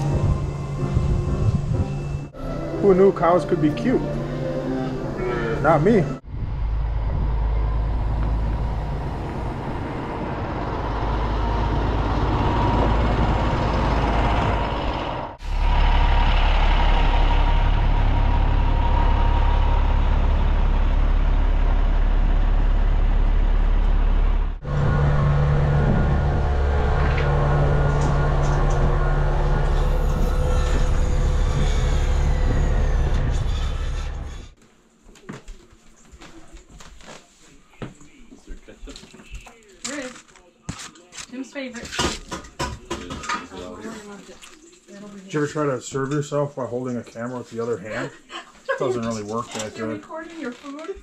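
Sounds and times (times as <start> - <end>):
diesel truck engine droning: 0.0 - 34.6.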